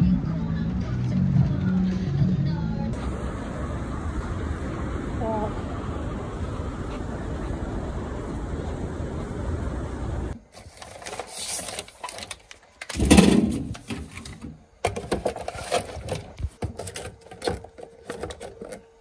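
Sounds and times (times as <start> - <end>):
wind noise: 3.0 - 10.4
plastic sachets rustling: 10.5 - 13.0
plastic bottles knocking: 12.9 - 18.8.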